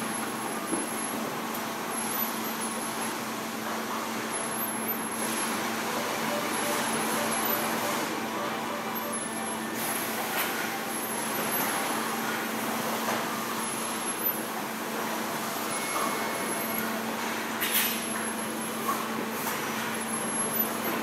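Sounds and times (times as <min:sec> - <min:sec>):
factory machinery hum: 0:00.0 - 0:21.0.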